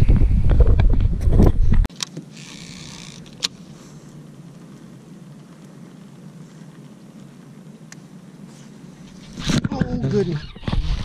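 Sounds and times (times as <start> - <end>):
wind buffeting microphone: 0.0 - 1.9.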